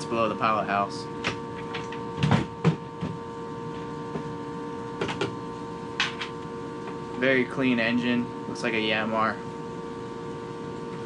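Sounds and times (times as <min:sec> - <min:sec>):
steady hum: 0:00.0 - 0:11.0.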